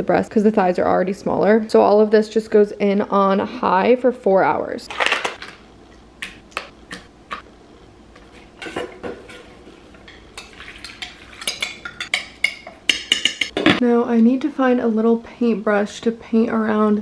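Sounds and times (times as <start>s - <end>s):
utensils and crockery clinking: 8.6s - 13.8s
sauce pouring: 9.7s - 12.1s.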